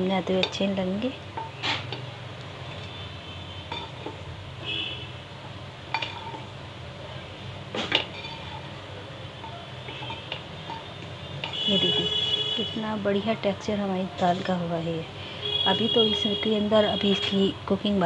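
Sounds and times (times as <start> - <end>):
wooden spatula stirring in pot: 0.3 - 4.8, 7.7 - 12.6.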